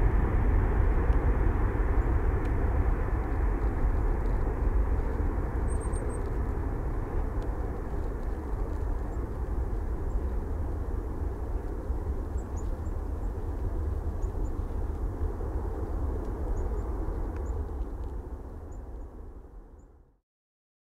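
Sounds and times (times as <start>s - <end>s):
jet engines deep rumble: 0.0s - 20.0s.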